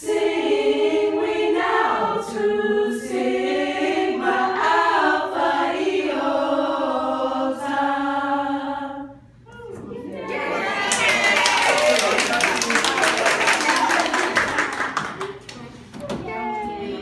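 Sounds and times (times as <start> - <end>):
women singing in harmony: 0.0 - 9.9.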